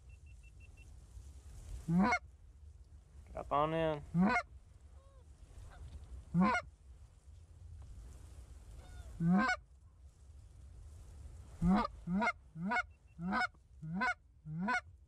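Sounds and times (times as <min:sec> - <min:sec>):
wind rumble on microphone: 0:00.0 - 0:15.0
geese honking: 0:01.9 - 0:02.2, 0:04.2 - 0:04.4, 0:06.4 - 0:06.6, 0:08.8 - 0:09.6, 0:11.6 - 0:14.8.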